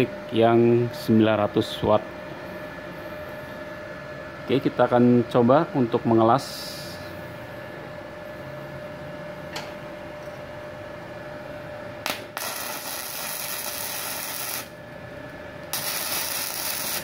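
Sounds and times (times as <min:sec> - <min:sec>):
steady hum: 0:00.0 - 0:17.0
sharp click of arc strike: 0:12.0 - 0:12.3
welding arc crackling: 0:12.0 - 0:17.0.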